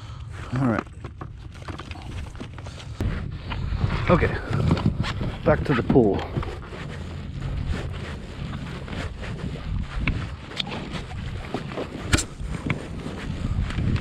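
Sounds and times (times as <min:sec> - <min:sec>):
wind buffeting microphone: 0:02.9 - 0:14.0
rope knocks and rubs: 0:04.1 - 0:14.0.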